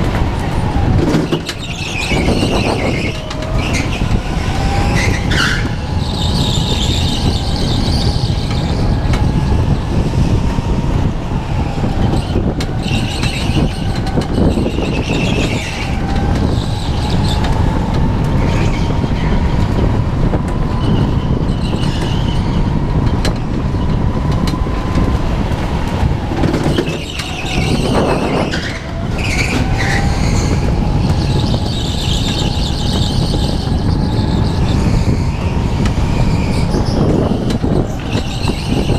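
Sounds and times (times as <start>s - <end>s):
go-kart engine rumbling: 0.0s - 38.9s
tyres squealing: 26.3s - 35.6s.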